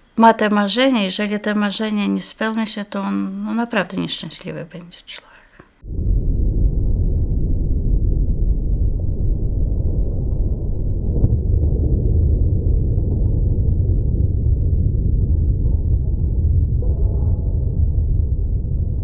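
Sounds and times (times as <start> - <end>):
car engine rumble: 5.8 - 19.0.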